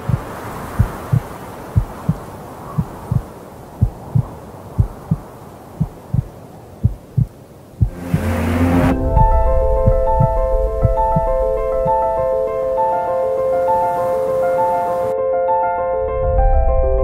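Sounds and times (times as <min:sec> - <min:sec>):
heartbeat thumps: 0:00.0 - 0:08.3, 0:08.9 - 0:12.2.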